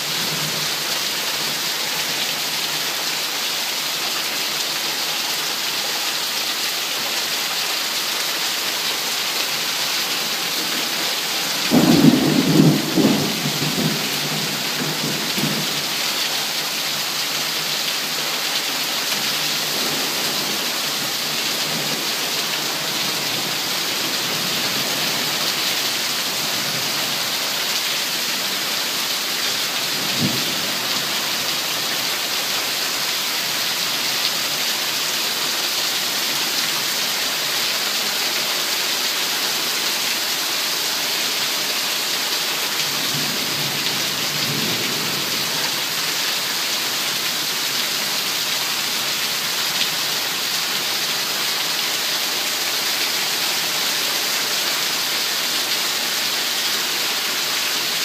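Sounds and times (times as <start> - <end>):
heavy rain pouring: 0.0 - 58.0
low rumble of thunder: 11.7 - 15.9.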